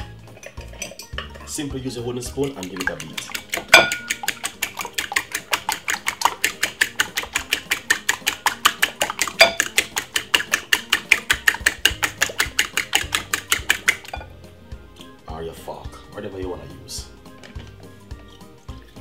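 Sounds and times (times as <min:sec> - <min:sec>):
fork beating eggs in bowl: 0:02.1 - 0:14.3.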